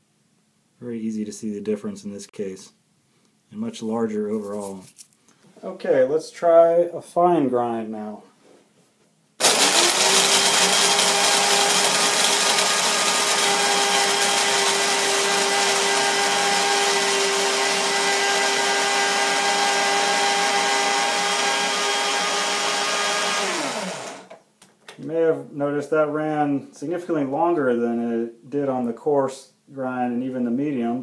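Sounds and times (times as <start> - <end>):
blade coffee grinder running: 9.4 - 24.3.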